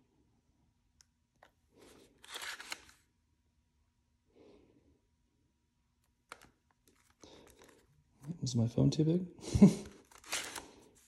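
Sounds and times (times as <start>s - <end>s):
rustling scrape of phone grip: 1.8s - 3.0s, 10.0s - 11.0s.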